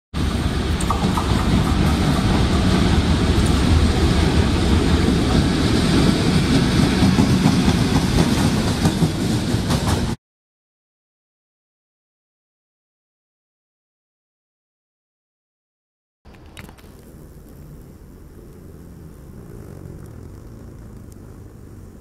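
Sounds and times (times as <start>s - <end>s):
freight train rumbling past: 0.2s - 10.2s.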